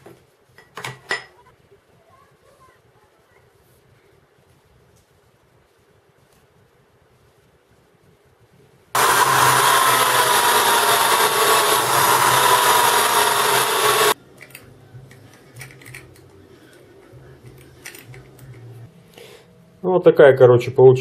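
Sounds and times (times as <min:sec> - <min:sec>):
drill press whirring: 0:09.0 - 0:14.2
metal parts clicking and knocking: 0:15.4 - 0:16.2.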